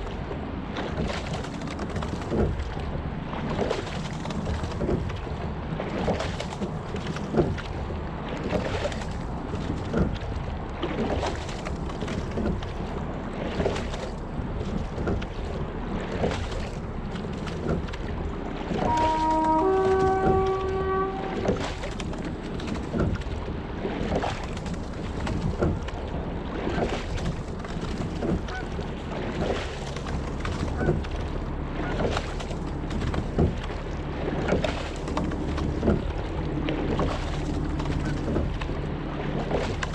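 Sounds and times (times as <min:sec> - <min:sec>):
oar knocks and splashes: 0:00.0 - 0:39.9
water washing along hull: 0:00.0 - 0:39.9
wind on microphone: 0:13.6 - 0:31.2.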